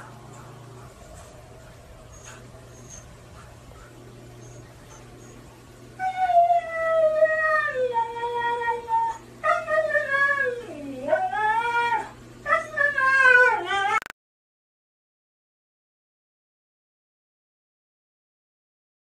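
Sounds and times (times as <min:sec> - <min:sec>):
husky howling: 0:06.0 - 0:14.0.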